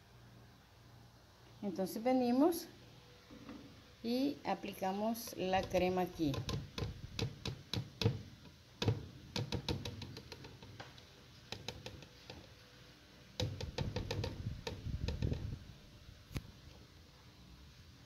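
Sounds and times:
plastic cup knocking on blender jar: 5.6s - 8.2s, 8.8s - 10.7s, 13.4s - 15.5s.

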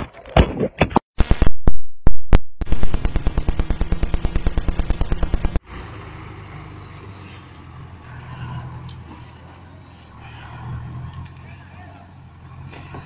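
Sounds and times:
outdoor background noise: 2.6s - 13.0s
truck engine at low revs: 2.6s - 13.0s.

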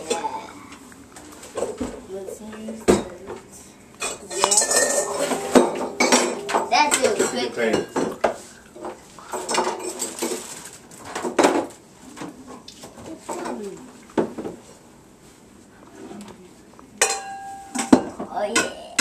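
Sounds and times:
metal bowl and parts clanking: 4.0s - 8.3s.

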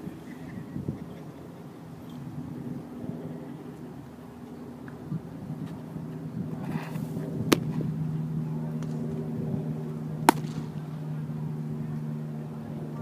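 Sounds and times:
low steady hum: 0.0s - 13.0s
baseball bat cracks: 10.2s - 10.8s.

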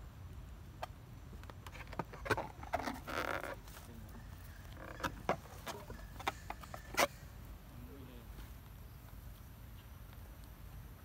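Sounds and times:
rustling: 1.3s - 7.4s.

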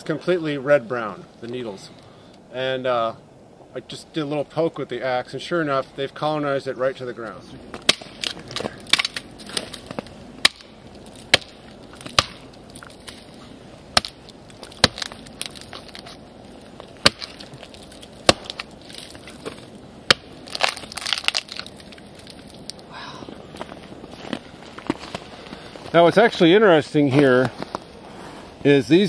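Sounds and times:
bark cracking and tearing: 7.8s - 22.9s.

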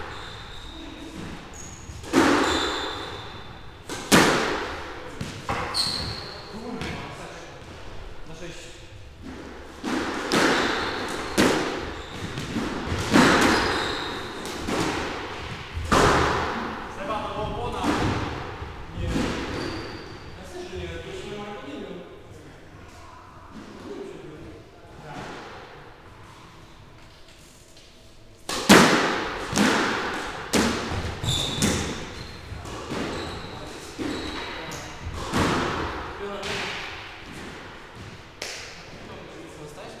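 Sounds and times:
shoes squeaking on court floor: 0.0s - 3.6s, 5.2s - 7.0s, 10.3s - 14.8s, 19.4s - 20.4s, 30.7s - 35.3s
squash ball hitting rackets and walls: 0.0s - 7.8s, 9.2s - 20.2s, 28.4s - 39.1s.

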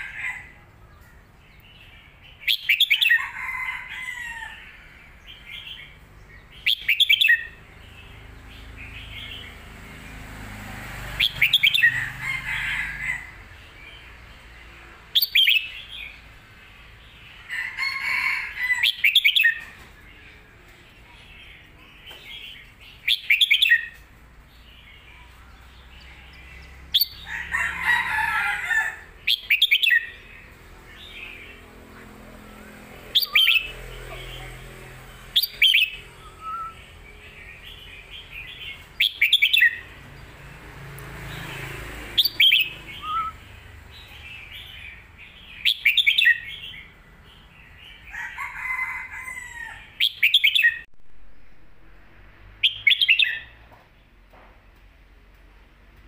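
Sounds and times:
bird singing warbling phrases: 0.0s - 3.4s, 5.1s - 9.6s, 15.2s - 16.2s, 18.8s - 24.0s, 29.2s - 40.0s, 42.2s - 48.1s, 49.9s - 50.9s, 52.6s - 53.6s.

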